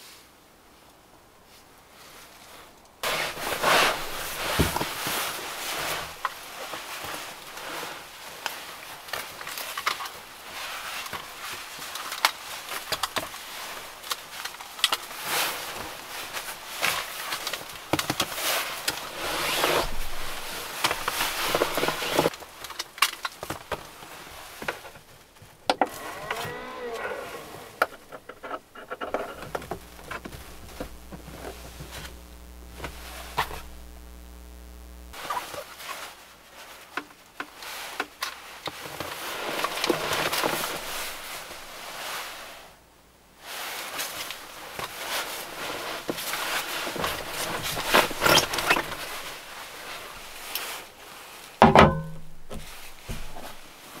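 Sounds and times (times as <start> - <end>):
fabric rustling and crinkling: 1.4 - 42.8, 43.4 - 54.0
steady low hum: 29.1 - 35.2.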